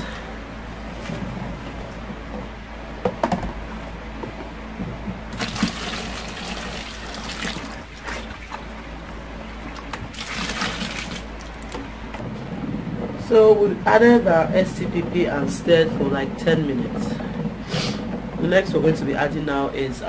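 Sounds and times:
liquid pouring into bucket: 5.3 - 8.7, 9.7 - 11.8.

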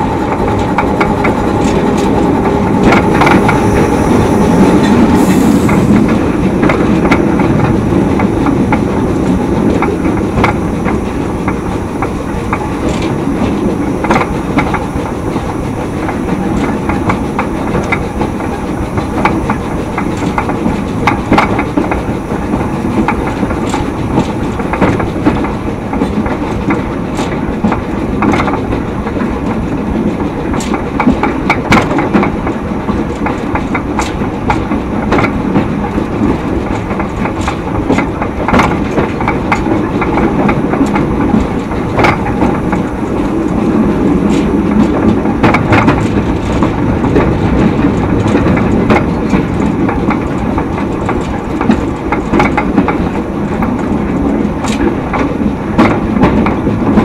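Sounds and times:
train rumbling on track: 0.0 - 57.0
wheels clicking on rails: 0.0 - 57.0.

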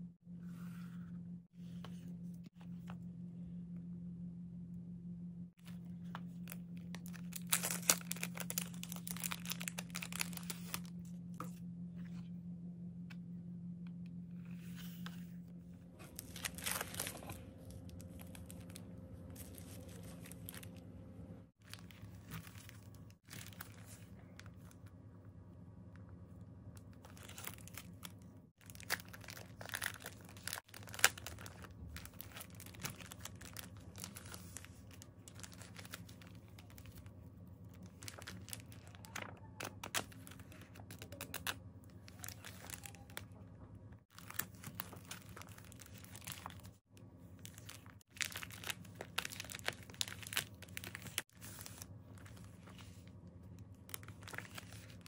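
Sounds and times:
faint steady hum: 0.0 - 55.0
plastic wrapping crinkling: 5.6 - 11.0, 16.0 - 20.8, 21.5 - 24.9, 26.9 - 43.4, 44.1 - 55.0
paper rustling: 15.9 - 20.7, 37.7 - 43.2, 47.4 - 53.1, 53.9 - 55.0.

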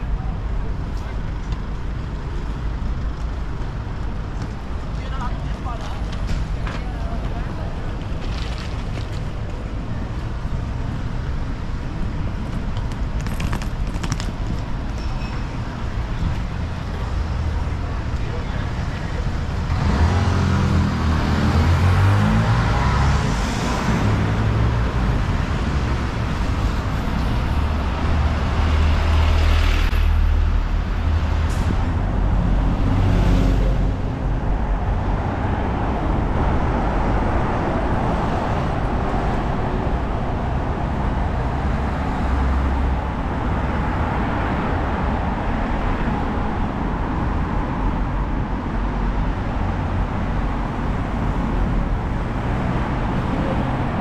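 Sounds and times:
city traffic rumble: 0.0 - 54.0
vehicles passing close by: 0.0 - 54.0.

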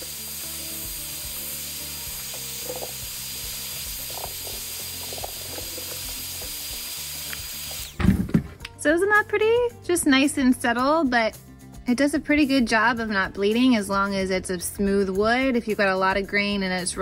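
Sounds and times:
heat gun blowing hot air: 0.0 - 8.4.

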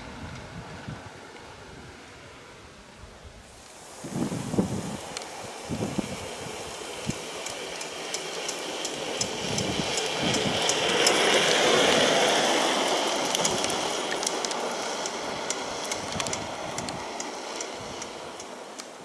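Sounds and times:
tyres rolling on asphalt: 3.6 - 19.0
small sharp clicks and rattles: 6.6 - 19.0.

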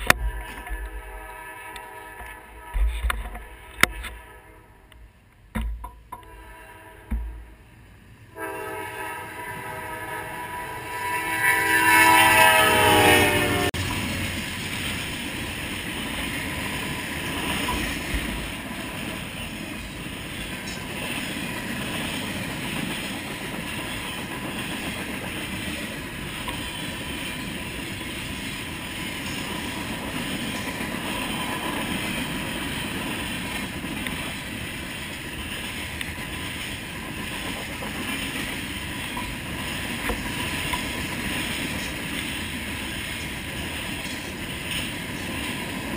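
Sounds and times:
locomotive horn blowing: 0.0 - 5.0, 6.2 - 7.5, 8.3 - 13.8.

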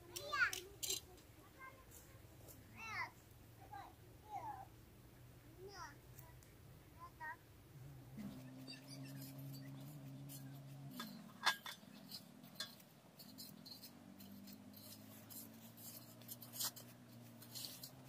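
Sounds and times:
clinks on metal bowl: 8.8 - 18.0.

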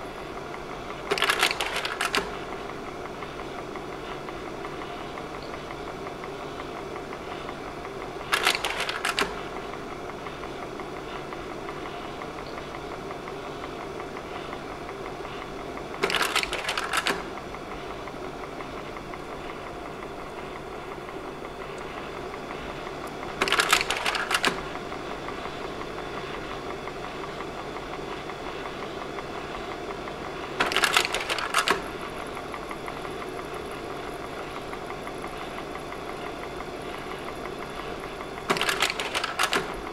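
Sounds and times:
projector fan hum: 0.0 - 39.9
slide-change mechanism clacking: 38.5 - 39.8.

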